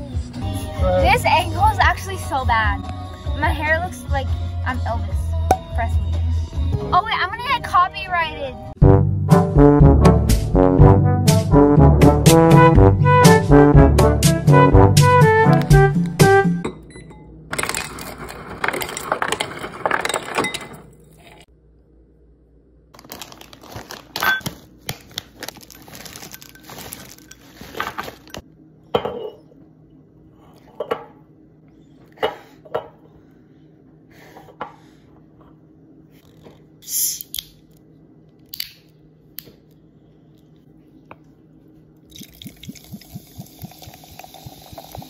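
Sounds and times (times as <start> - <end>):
ice cubes clattering into glass: 17.5 - 21.4, 25.6 - 28.3.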